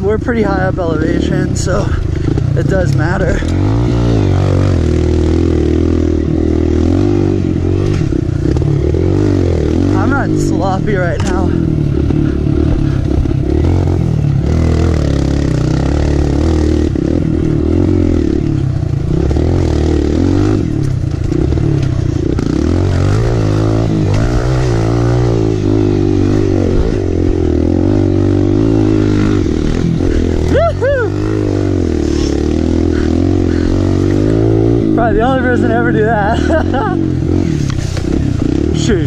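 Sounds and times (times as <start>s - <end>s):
dirt bike engine revving: 0.0s - 39.0s.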